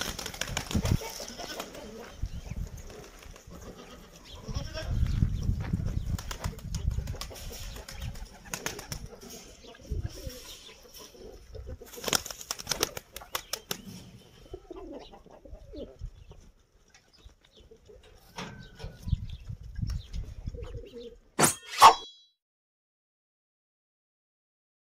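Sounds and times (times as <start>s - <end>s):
pigeon wings flapping: 0.0s - 1.8s, 6.1s - 9.1s, 11.9s - 13.8s
pigeons cooing: 0.0s - 4.4s, 5.9s - 19.2s, 20.1s - 21.3s.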